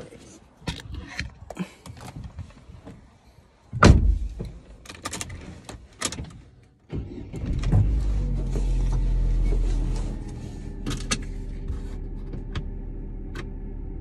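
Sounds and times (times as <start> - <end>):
car door slamming: 3.8 - 4.5
car engine starting and idling: 6.6 - 14.0.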